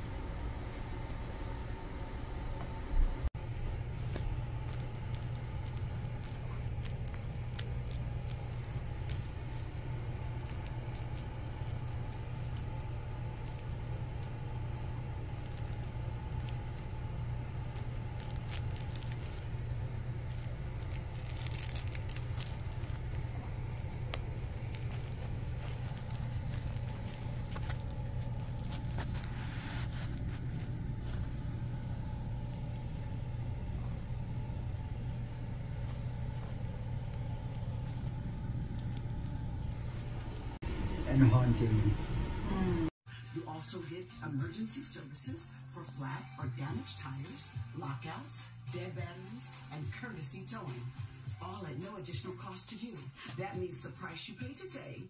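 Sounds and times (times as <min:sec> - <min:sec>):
steady low hum: 0:00.0 - 0:43.0
puppy pads crinkling and rustling: 0:03.4 - 0:40.6.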